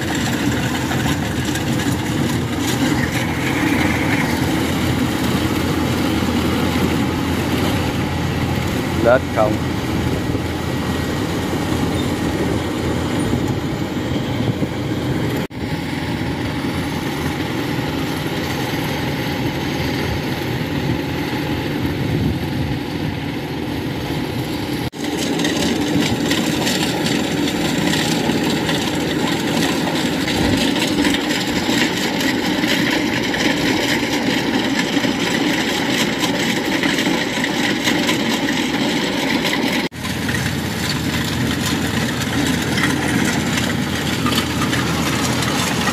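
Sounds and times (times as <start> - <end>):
combine harvester droning: 0.0 - 45.9.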